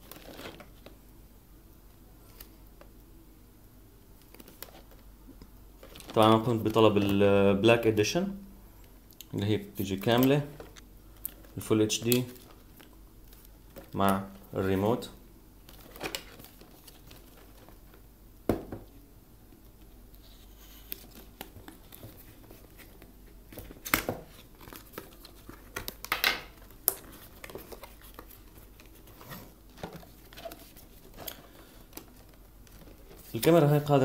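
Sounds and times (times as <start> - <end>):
low steady hum: 0.0 - 34.0
packaging taps and crinkles: 20.9 - 33.9.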